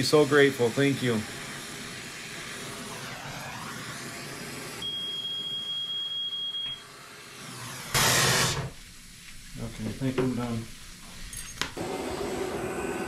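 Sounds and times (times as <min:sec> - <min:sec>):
torch flame hissing: 0:00.0 - 0:05.2, 0:06.8 - 0:13.0
high electronic beep: 0:04.8 - 0:06.8.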